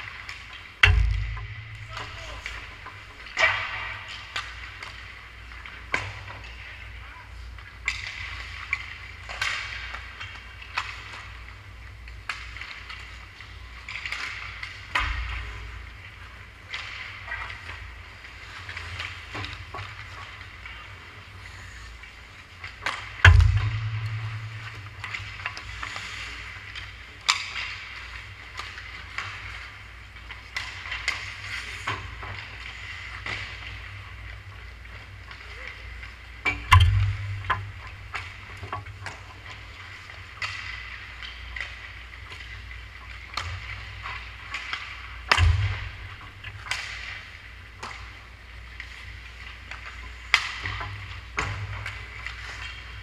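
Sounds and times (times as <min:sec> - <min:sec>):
hockey sticks clacking on pucks: 0:00.0 - 0:53.0
loud hard knock: 0:00.8 - 0:02.8, 0:23.3 - 0:24.8
steady low hum: 0:00.8 - 0:04.0, 0:21.2 - 0:27.1, 0:36.5 - 0:40.1
skate blades scraping ice: 0:24.6 - 0:36.4.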